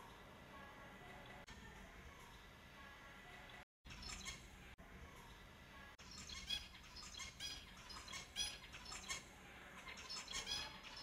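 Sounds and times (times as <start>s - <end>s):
finches chirping: 3.5s - 4.6s, 6.0s - 11.0s.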